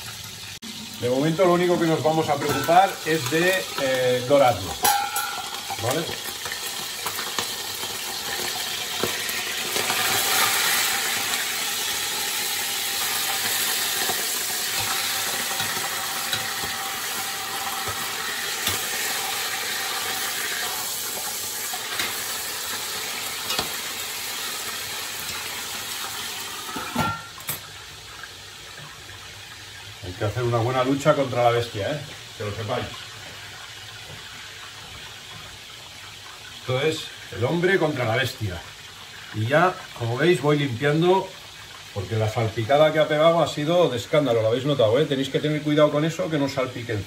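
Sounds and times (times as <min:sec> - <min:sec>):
meat sizzling and spattering in oil: 0:00.0 - 0:30.0
metal lid clanking onto pot: 0:02.4 - 0:03.0, 0:04.8 - 0:05.8, 0:26.7 - 0:27.6.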